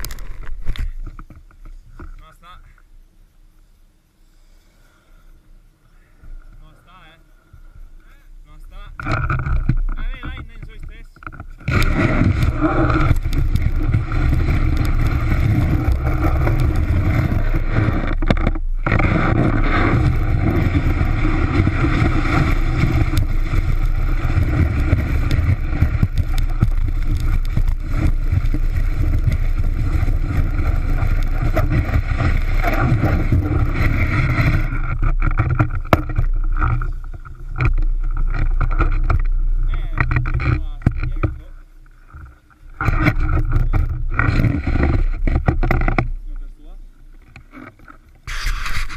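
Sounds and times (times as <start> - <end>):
wind buffeting camera: 8.7 - 48.9
snowboard scraping over snow: 11.6 - 40.0, 42.8 - 46.7, 48.3 - 48.9.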